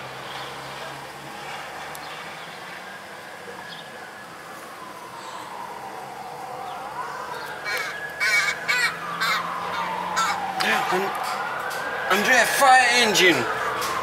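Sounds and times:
fire engine siren wailing: 0:00.0 - 0:14.0
crows cawing: 0:07.4 - 0:11.1.

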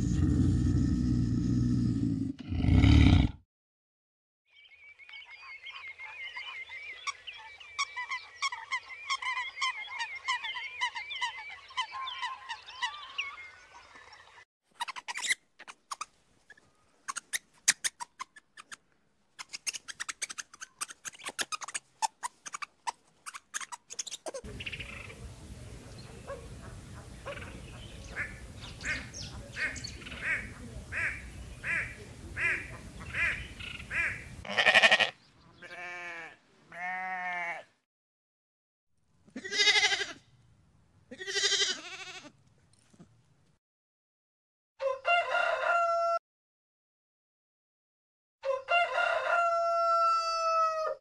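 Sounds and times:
swamphen calling: 0:26.0 - 0:36.1.

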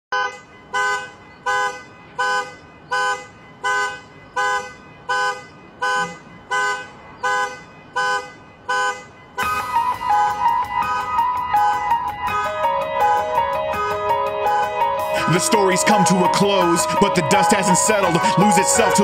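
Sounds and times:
car horn alarm honking: 0:00.1 - 0:19.0
music with drums and keyboard: 0:09.4 - 0:19.0.

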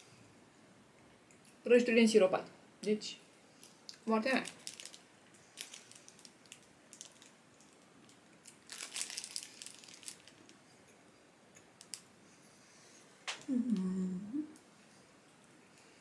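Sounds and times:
snack packaging crinkling: 0:03.6 - 0:10.6, 0:11.8 - 0:12.1.

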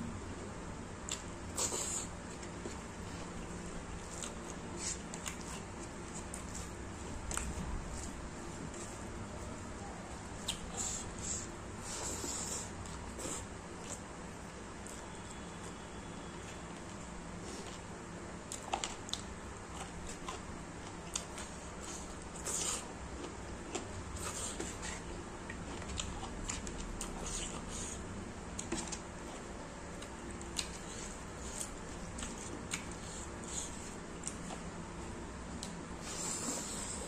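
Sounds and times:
chewing and lip-smacking: 0:04.0 - 0:09.0, 0:10.3 - 0:11.0, 0:18.5 - 0:34.7.

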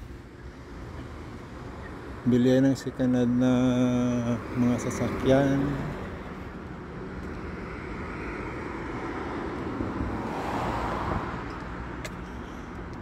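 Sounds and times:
low traffic hum: 0:00.0 - 0:13.0
car driving past: 0:07.7 - 0:11.9.

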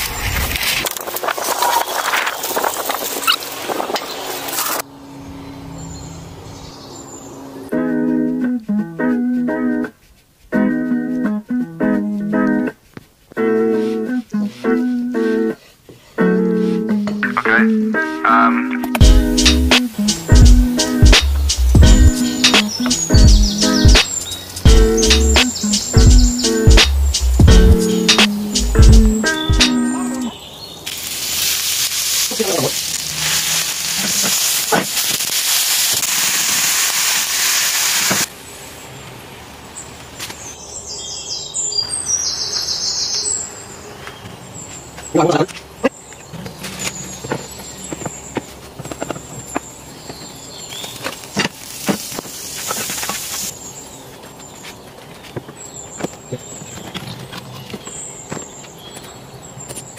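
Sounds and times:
music: 0:07.7 - 0:12.8, 0:13.4 - 0:30.3
meat sizzling in a skillet: 0:30.9 - 0:38.8, 0:51.6 - 0:53.5.

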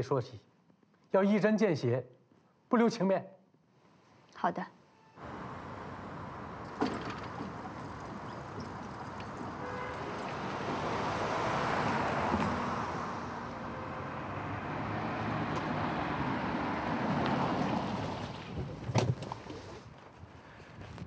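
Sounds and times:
tyres rolling: 0:05.2 - 0:16.3.

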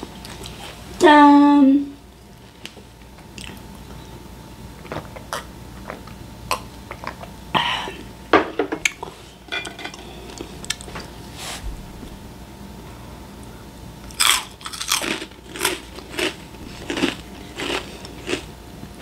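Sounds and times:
snacks being crunched: 0:02.6 - 0:03.7, 0:14.1 - 0:18.5.

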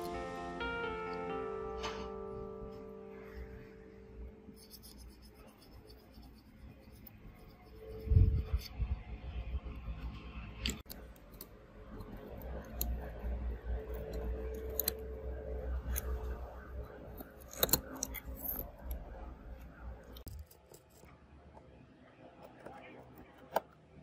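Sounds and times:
low hum: 0:00.0 - 0:20.4
phone parts clicking and scraping: 0:10.6 - 0:21.2.

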